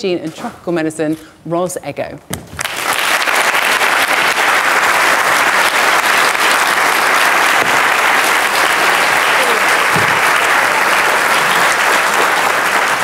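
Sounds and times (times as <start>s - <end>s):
large audience applauding: 2.6s - 13.0s.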